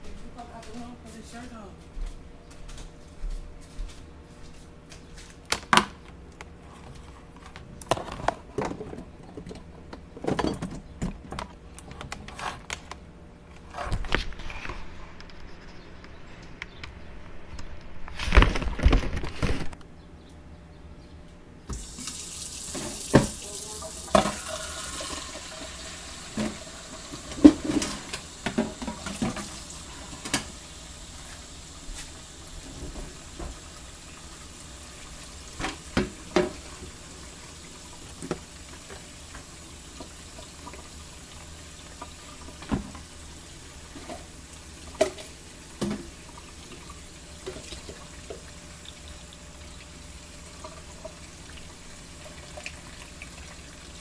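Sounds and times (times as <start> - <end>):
faucet running into sink: 21.7 - 30.6.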